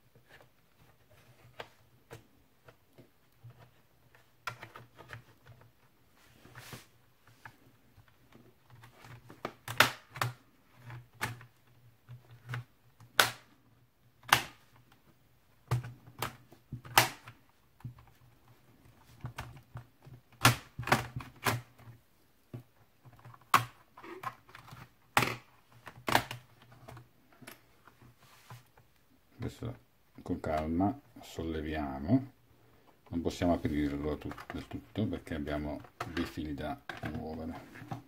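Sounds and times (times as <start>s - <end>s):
plastic clips clicking loose: 14.2s - 14.9s, 15.7s - 17.4s.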